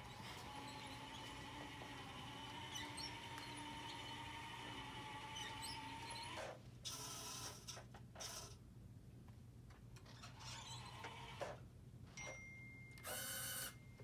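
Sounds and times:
electric motors whining: 0.0s - 6.6s, 13.0s - 13.8s
faint squeaks: 10.0s - 11.2s.

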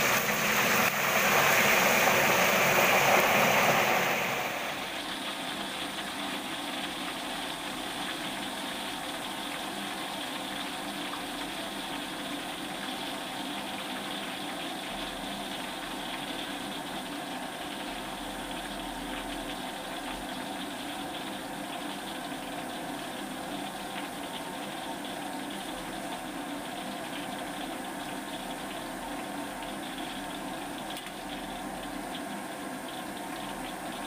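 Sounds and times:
oil sizzling: 0.0s - 7.6s
oil bubbling: 0.0s - 34.0s.

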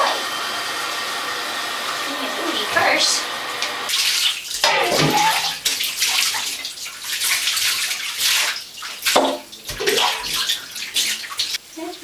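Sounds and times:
water pouring and splashing: 3.8s - 12.0s.

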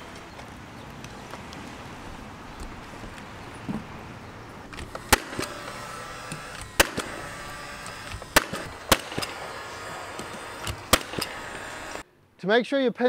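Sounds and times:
nail gun shots: 4.8s - 12.0s.

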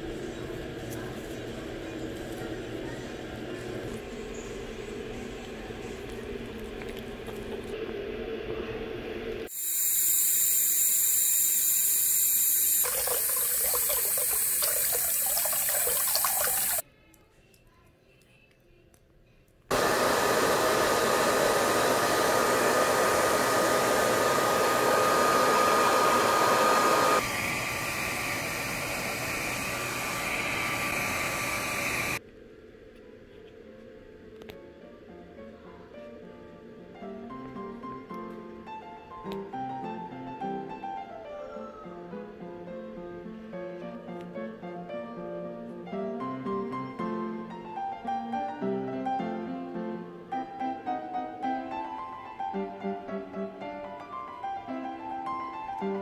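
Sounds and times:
tap water running into sink: 12.6s - 16.8s
hair dryer running: 19.7s - 32.2s.

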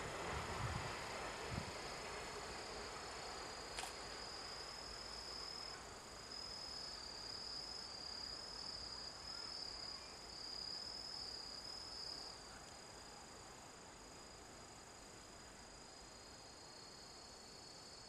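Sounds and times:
insects trilling: 1.7s - 14.4s
sharp click: 3.8s - 4.0s.

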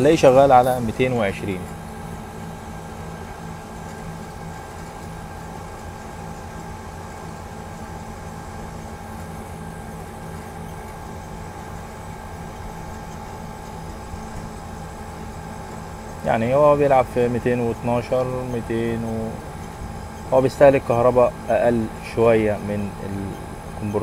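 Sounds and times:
air conditioner humming: 0.0s - 24.0s.

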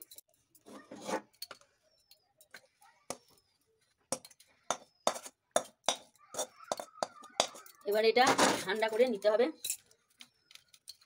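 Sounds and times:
metal spatula scraping a pan: 0.5s - 1.6s, 4.1s - 9.8s.

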